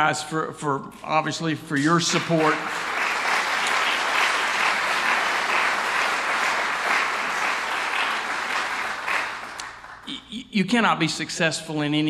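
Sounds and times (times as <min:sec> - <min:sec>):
audience applauding: 0:01.8 - 0:10.2.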